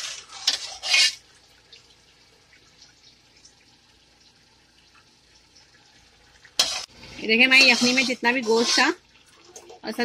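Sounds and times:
broth splashing into metal pot: 6.4 - 9.9.

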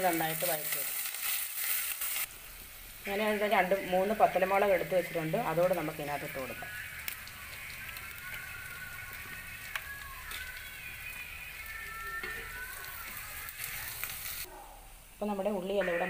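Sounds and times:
small crackles: 0.0 - 2.7, 7.0 - 14.5
shallots sizzling in hot oil: 0.0 - 14.5.

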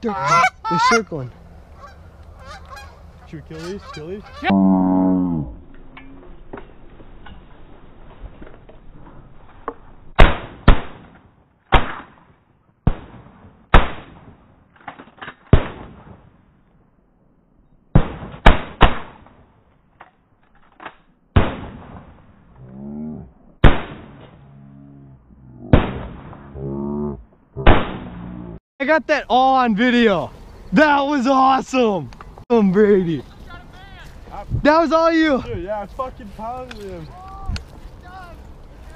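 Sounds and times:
shotgun blasts: 10.2 - 14.4, 15.5 - 16.3, 17.9 - 19.4, 21.4 - 22.2, 23.6 - 24.2, 25.7 - 26.5, 27.6 - 28.2.

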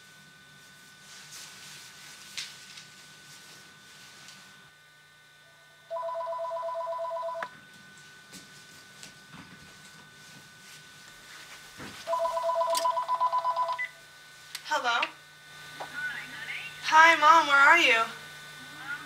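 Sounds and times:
electronic telephone ringing: 5.9 - 7.5, 12.1 - 14.0.

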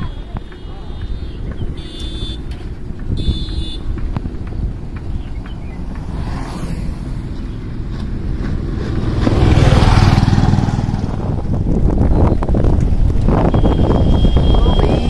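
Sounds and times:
low rumble of road riding: 0.0 - 15.0
truck passing close by: 4.6 - 11.6.

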